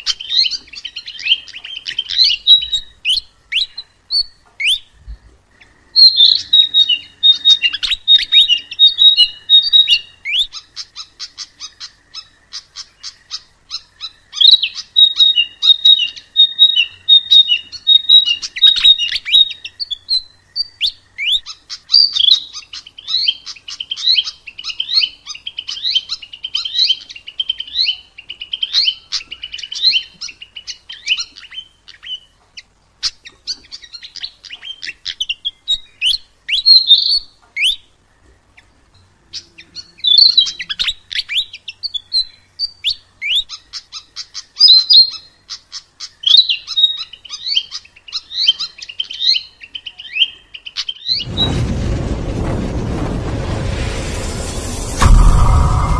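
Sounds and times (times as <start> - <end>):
flycatcher singing chirps and trills: 0.0 - 32.3.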